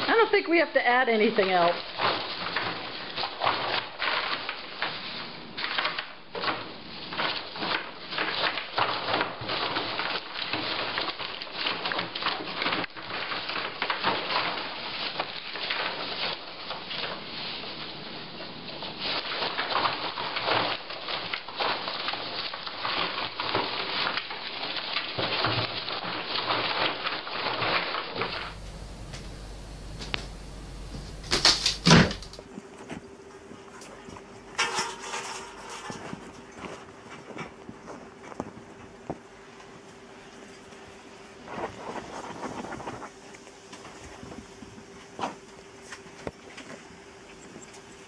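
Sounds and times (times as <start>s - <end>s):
packing peanuts rustling and crackling: 19.2s - 32.4s.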